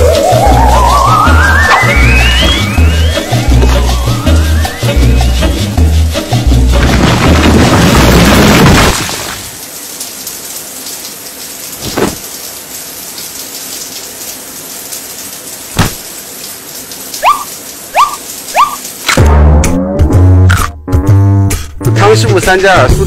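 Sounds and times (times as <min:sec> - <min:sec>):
music: 0:00.0 - 0:08.3, 0:19.2 - 0:23.0
showers running: 0:00.0 - 0:19.2.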